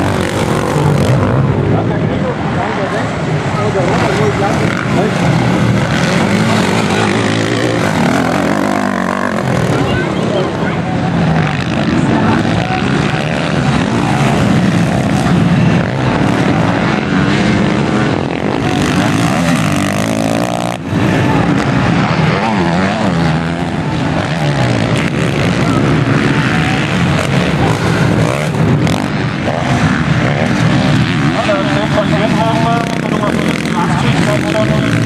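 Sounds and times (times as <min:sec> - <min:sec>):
motorbike engines revving: 0:00.0 - 0:35.0.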